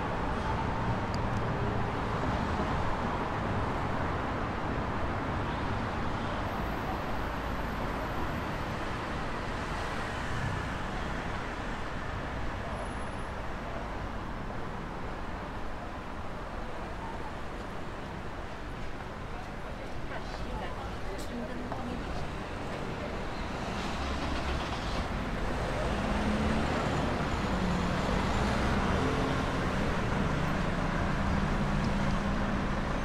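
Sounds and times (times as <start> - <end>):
cars going by: 20.2 - 33.0.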